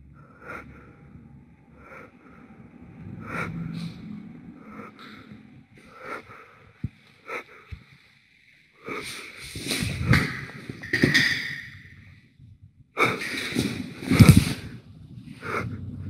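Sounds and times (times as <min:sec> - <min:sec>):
person breathing and sniffing: 0:03.2 - 0:08.2, 0:08.8 - 0:10.8, 0:13.0 - 0:14.8
footsteps: 0:09.0 - 0:11.8, 0:13.0 - 0:14.8.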